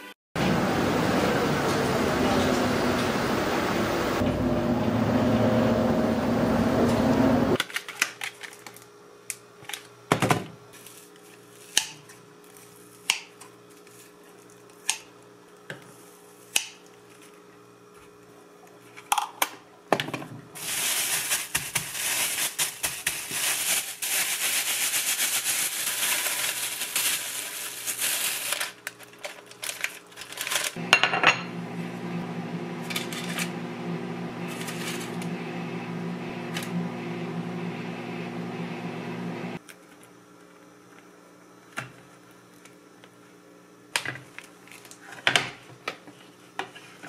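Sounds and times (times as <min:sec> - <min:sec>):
bus ride noise: 0:00.4 - 0:07.6
crinkly plastic and paper rustling: 0:07.6 - 0:09.0, 0:10.7 - 0:13.0, 0:13.6 - 0:14.8, 0:20.6 - 0:30.8, 0:34.5 - 0:35.2, 0:44.2 - 0:45.2.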